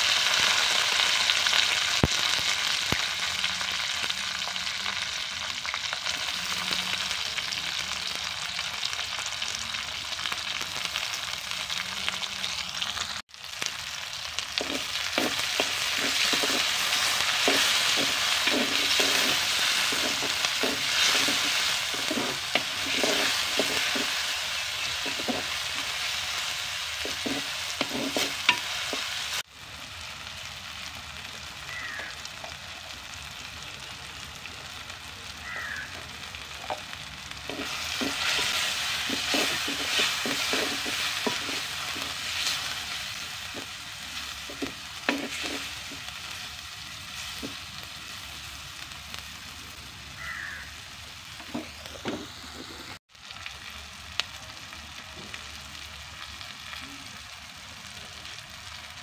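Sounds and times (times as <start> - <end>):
onions sizzling in a pot: 0.0 - 59.0
wooden spoon scraping a pot: 14.6 - 26.0, 27.0 - 29.3, 37.5 - 46.1.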